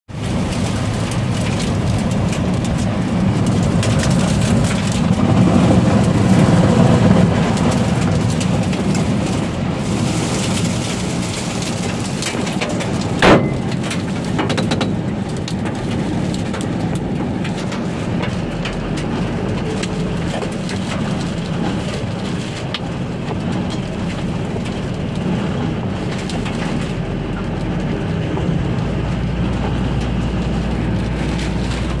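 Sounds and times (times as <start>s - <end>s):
wind and rain battering vehicle: 0.1s - 32.0s
sharp bang: 13.2s - 13.8s.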